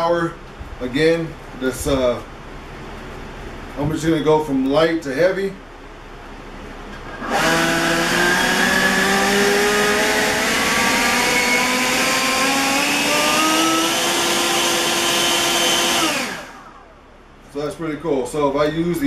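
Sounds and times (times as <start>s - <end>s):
leaf blower running: 7.0s - 17.0s.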